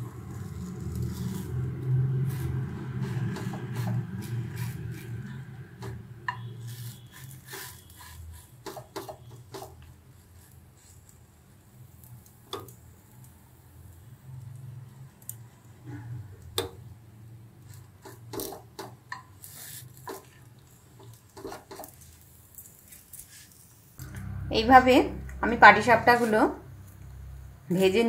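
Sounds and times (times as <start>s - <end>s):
wooden spatula scraping a pan: 0.3s - 11.1s, 17.7s - 22.2s
low steady rumble: 24.0s - 28.0s.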